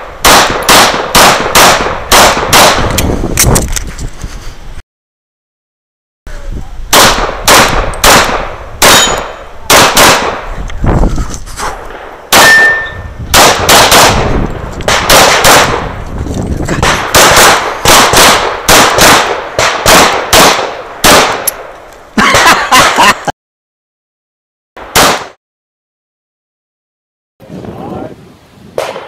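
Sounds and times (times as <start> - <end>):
pistol shots: 0.2 - 3.0, 6.9 - 10.5, 11.8 - 16.0, 16.8 - 21.7, 24.8 - 25.4.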